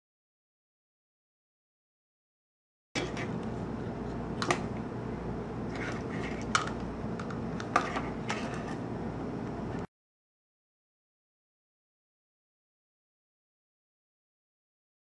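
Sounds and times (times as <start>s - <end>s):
steady background noise: 3.0s - 9.9s.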